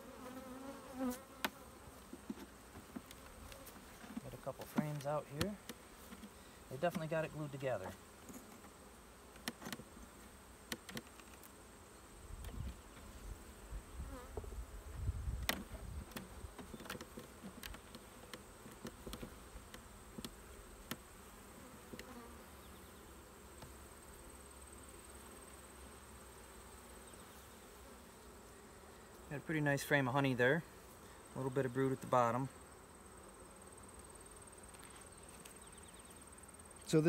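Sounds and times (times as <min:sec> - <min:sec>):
honeybees buzzing: 0:00.0 - 0:37.0
hive tool prying wooden frames: 0:09.3 - 0:09.9, 0:10.6 - 0:11.5, 0:15.4 - 0:21.0.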